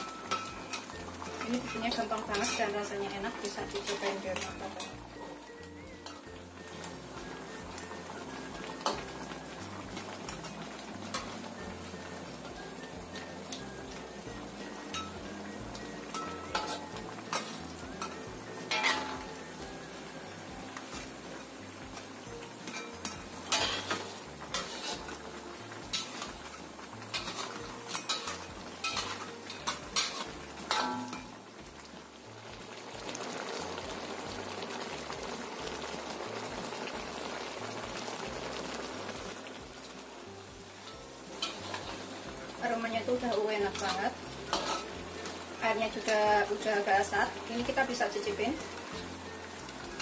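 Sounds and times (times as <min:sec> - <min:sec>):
metal spatula scraping wok: 0:00.0 - 0:21.9, 0:22.5 - 0:31.4, 0:40.8 - 0:50.0
sauce bubbling and sizzling: 0:00.0 - 0:50.0.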